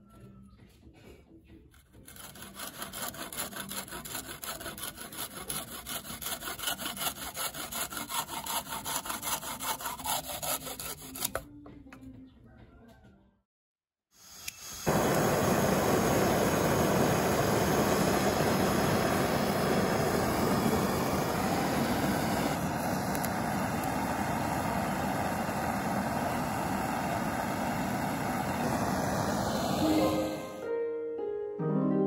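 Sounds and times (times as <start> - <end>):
blowtorch hissing: 14.2 - 30.7.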